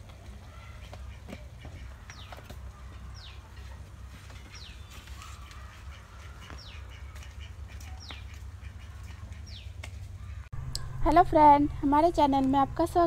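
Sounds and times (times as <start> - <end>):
steady low rumble: 6.8 - 13.0.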